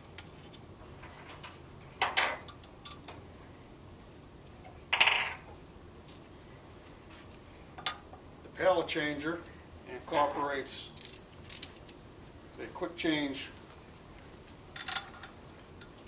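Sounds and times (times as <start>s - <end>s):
metallic clinks and clatters: 10.1s - 11.9s.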